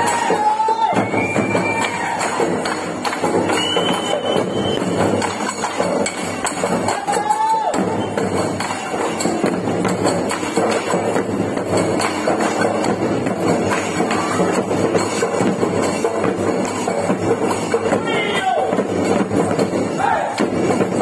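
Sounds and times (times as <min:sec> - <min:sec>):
barrel drums beaten with sticks: 0:00.0 - 0:21.0.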